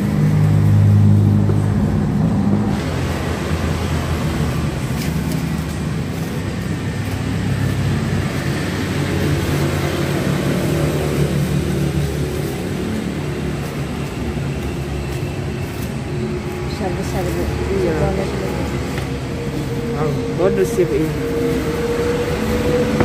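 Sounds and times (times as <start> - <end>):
engine drone: 0.0 - 23.0
traffic noise: 0.0 - 23.0.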